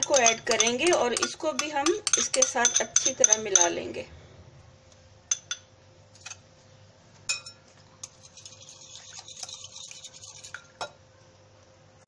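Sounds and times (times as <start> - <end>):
whisk clinking on glass bowl: 0.0 - 3.7.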